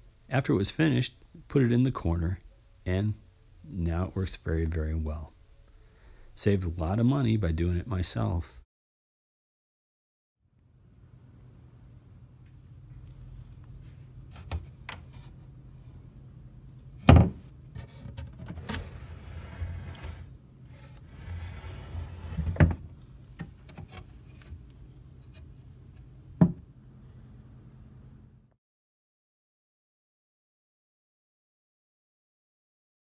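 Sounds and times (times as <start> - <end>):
steady low hum: 0.0 - 8.6, 10.5 - 28.6
wooden cabinet doors clunking: 17.0 - 17.5, 22.3 - 24.0, 26.4 - 26.6
drawer sliding: 17.0 - 24.6.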